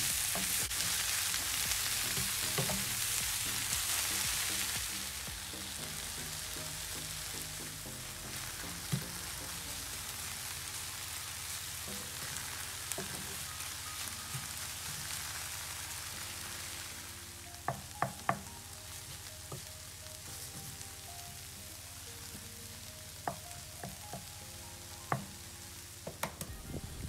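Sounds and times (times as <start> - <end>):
vegetables sizzling in oil: 0.0 - 27.0
spatula knocking on pan: 2.2 - 3.4, 17.7 - 18.5, 23.2 - 24.3.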